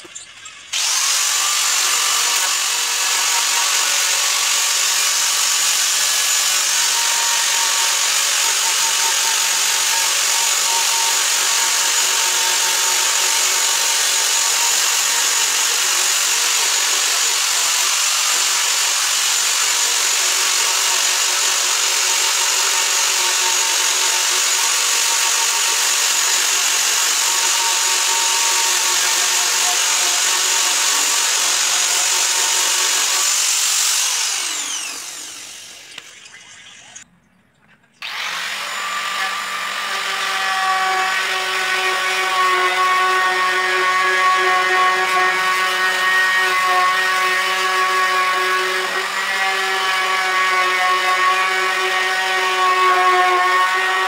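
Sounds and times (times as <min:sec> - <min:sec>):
angle grinder whining: 0:00.0 - 0:37.1, 0:38.0 - 0:54.0
grinder disc spinning down: 0:32.4 - 0:37.0.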